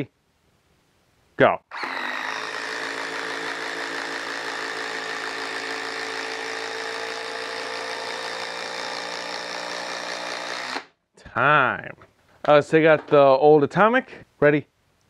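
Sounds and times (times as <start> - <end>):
impact driver hammering screw: 1.7 - 10.9.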